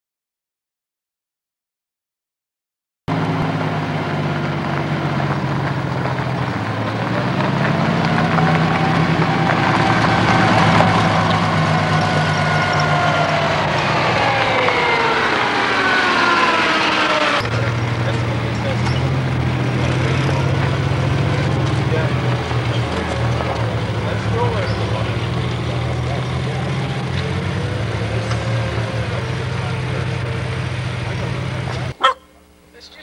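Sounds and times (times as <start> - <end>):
jeep engines driving: 3.1 - 33.0.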